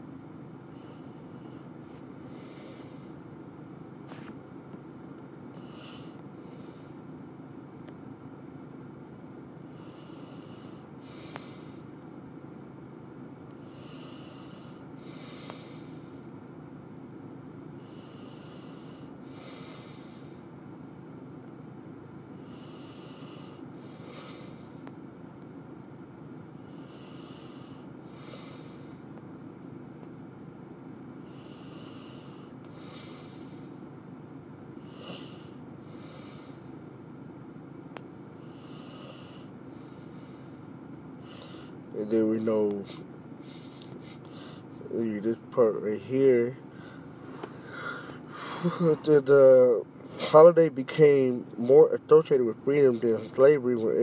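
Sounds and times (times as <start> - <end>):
steady low hum: 0.0 - 54.0
person breathing through nose: 0.8 - 3.2, 5.6 - 7.0, 9.8 - 11.9, 13.6 - 16.2, 17.8 - 20.4, 22.4 - 24.8, 26.7 - 29.0, 31.3 - 33.8, 34.9 - 36.6, 41.2 - 41.8, 42.8 - 44.7, 46.7 - 48.7.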